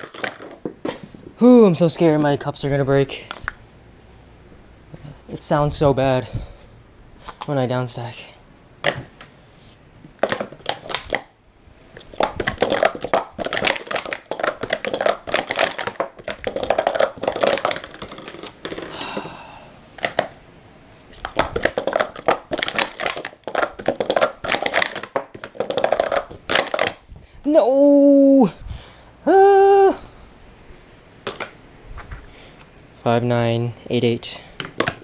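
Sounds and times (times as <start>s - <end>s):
plastic cups clattering: 0.0s - 1.3s, 10.2s - 11.3s, 12.0s - 19.4s, 20.0s - 20.4s, 21.1s - 27.0s, 31.2s - 31.6s, 34.6s - 35.0s.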